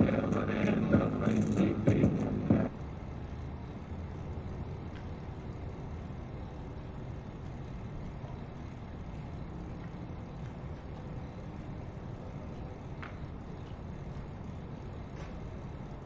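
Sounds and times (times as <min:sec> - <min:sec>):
loud music: 0:00.0 - 0:02.7
urban background rumble: 0:00.0 - 0:16.0.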